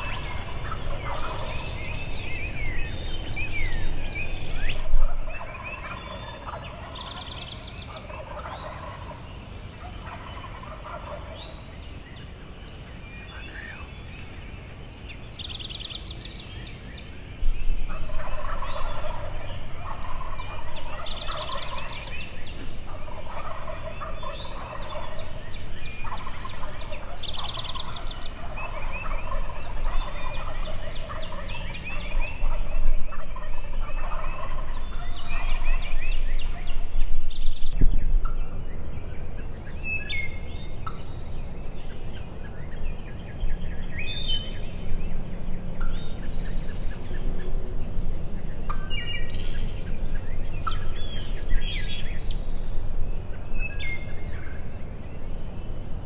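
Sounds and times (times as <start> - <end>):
turkeys gobbling: 0.0 - 2.0, 4.6 - 11.6, 17.9 - 36.7, 40.8 - 41.5, 48.6 - 52.3
songbirds trilling: 0.0 - 56.0.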